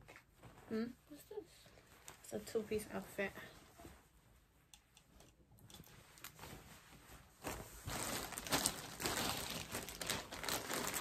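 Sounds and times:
plastic packaging crinkling: 7.4 - 11.0.

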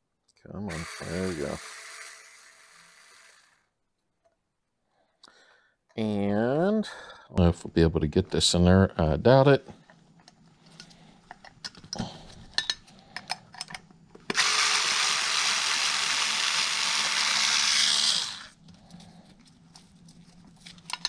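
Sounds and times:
electric screwdriver running: 0.7 - 3.6, 14.3 - 18.6.

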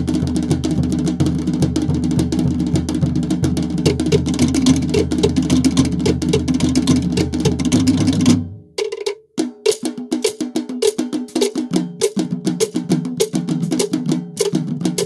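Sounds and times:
deep drum tones: 0.0 - 8.6
fast drum music: 0.0 - 15.0.

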